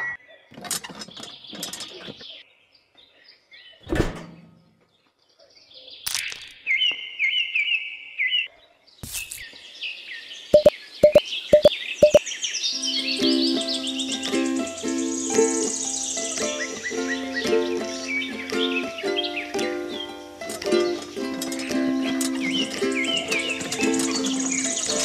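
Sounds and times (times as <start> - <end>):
birds chirping: 0.0 - 25.0
quick clicks: 10.6 - 12.2.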